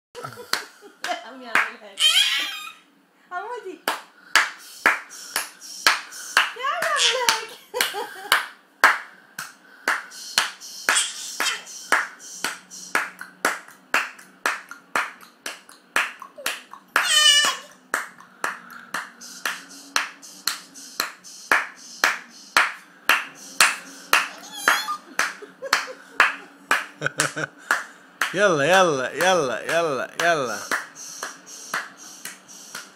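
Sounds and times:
hands clapping a steady beat: 0.2 - 1.8, 3.8 - 32.9
high wavering vocal cry: 17.0 - 17.7, 24.2 - 25.1.

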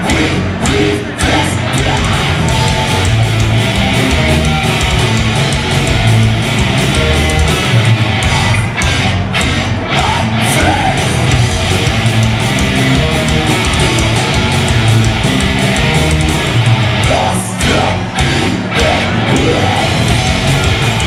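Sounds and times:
bass guitar: 0.0 - 21.0
drums: 0.0 - 21.0
electric guitars: 0.0 - 21.0.

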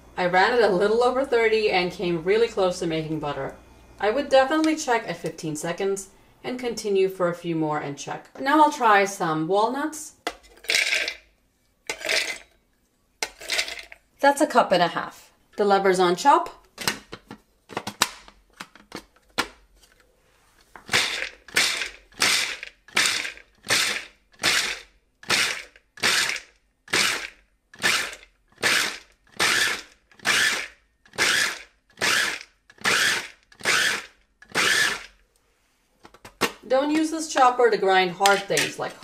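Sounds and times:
nuts rattling in plastic bowl: 10.6 - 11.2, 13.3 - 14.0
food chopper motor bursts: 20.9 - 35.2.

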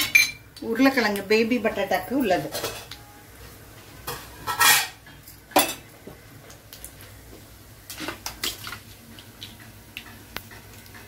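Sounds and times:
spatula scraping a pan: 4.4 - 5.0.

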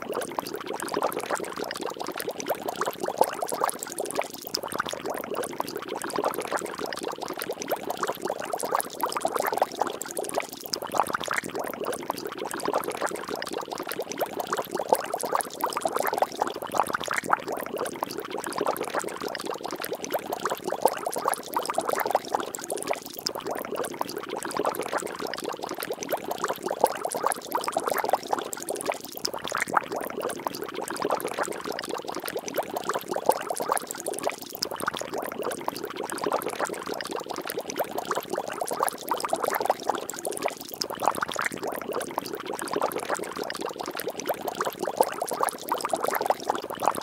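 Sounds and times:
water bubbling and splashing: 0.0 - 47.0.

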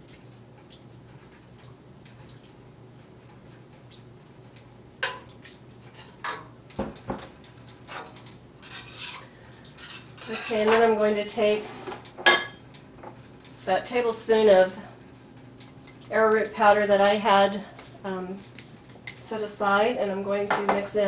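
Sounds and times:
metal spoon stirring in pot: 7.8 - 11.6.

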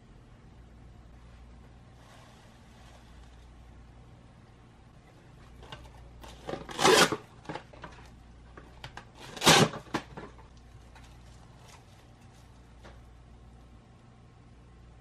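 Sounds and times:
cling wrap tearing: 6.3 - 7.4, 9.2 - 10.1.

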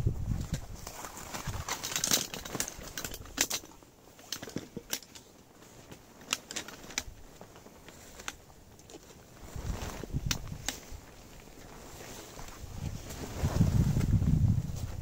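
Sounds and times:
fabric rustling: 0.3 - 15.0
chair poles clicking and rattling: 1.4 - 9.2.

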